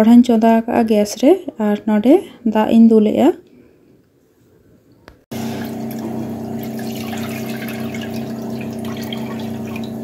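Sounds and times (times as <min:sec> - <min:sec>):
water pouring and splashing into pan: 0:05.3 - 0:10.0.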